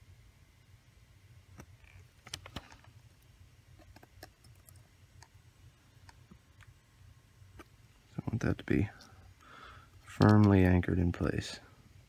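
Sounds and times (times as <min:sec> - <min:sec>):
small metal clicks and ticks: 0:10.0 - 0:10.8.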